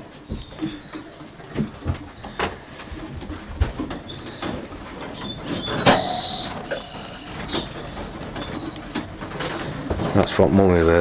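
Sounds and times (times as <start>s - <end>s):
canaries chirping and whistling: 0.3s - 2.5s, 3.7s - 9.8s.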